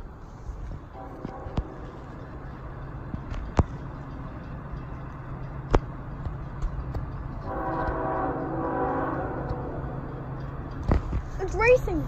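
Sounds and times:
diesel locomotive engine rumble: 0:00.0 - 0:12.0
locomotive air horn: 0:00.9 - 0:01.9, 0:07.4 - 0:09.9.

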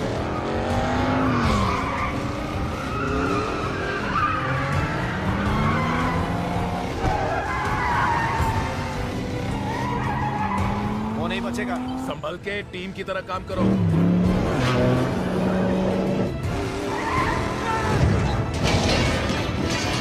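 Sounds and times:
car engines revving: 0:00.0 - 0:20.0
tyres squealing: 0:00.3 - 0:12.1.

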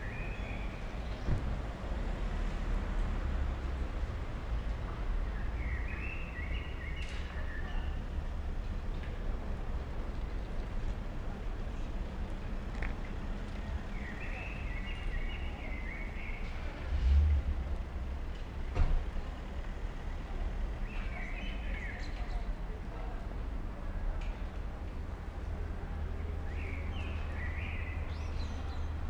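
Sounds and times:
passing car traffic rumble: 0:00.0 - 0:07.4, 0:08.0 - 0:21.9.

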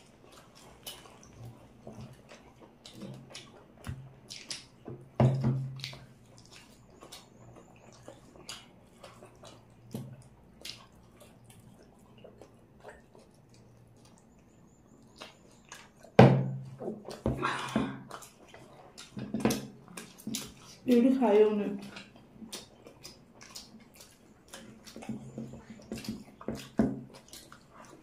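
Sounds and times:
wet chewing and lip smacks: 0:00.0 - 0:28.0
wet slurp: 0:17.0 - 0:21.1, 0:21.8 - 0:28.0.

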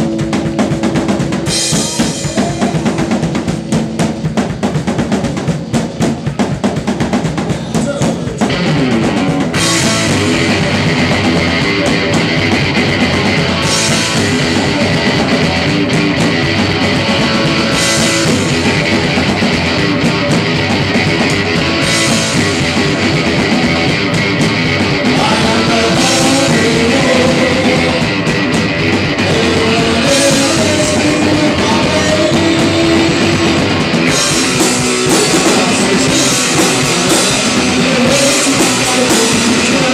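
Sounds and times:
drum kit: 0:00.0 - 0:39.9
electric guitar: 0:00.0 - 0:39.9
rock band playing: 0:00.0 - 0:39.9
man singing: 0:01.7 - 0:03.4, 0:25.0 - 0:28.4, 0:29.2 - 0:39.9.

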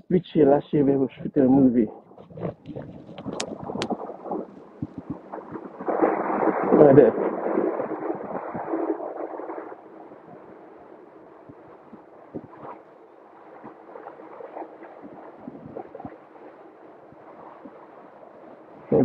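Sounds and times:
wind rushing over microphone: 0:00.4 - 0:19.0.

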